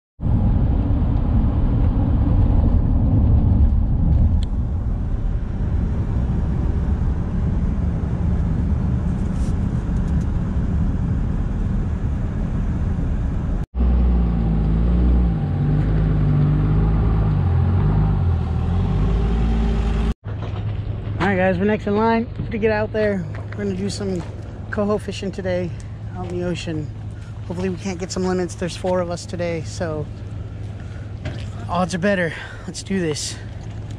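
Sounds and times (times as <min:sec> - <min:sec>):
road and engine noise in car: 0:00.2 - 0:21.4, 0:23.2 - 0:33.9
vehicle engine idling: 0:22.7 - 0:33.9.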